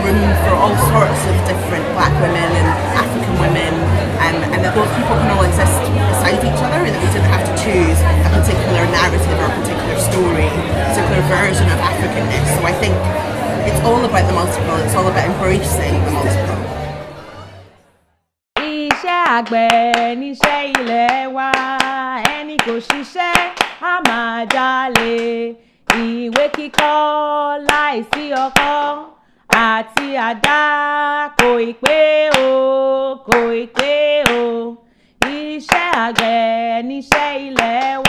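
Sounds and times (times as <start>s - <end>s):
woman singing: 0.0s - 13.1s, 18.6s - 38.0s
hand claps: 18.6s - 27.0s, 27.7s - 28.8s, 29.5s - 30.6s, 31.4s - 32.6s, 33.3s - 34.5s, 35.2s - 36.4s, 37.1s - 38.0s.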